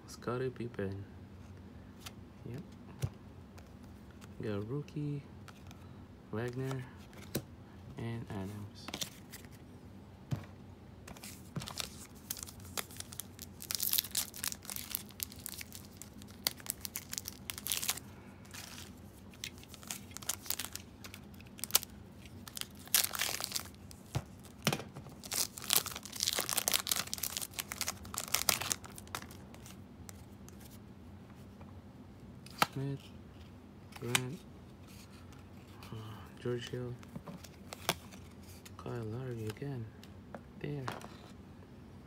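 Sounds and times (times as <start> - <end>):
foil wrappers tearing and crinkling: 11.6 - 24.6, 25.2 - 29.8.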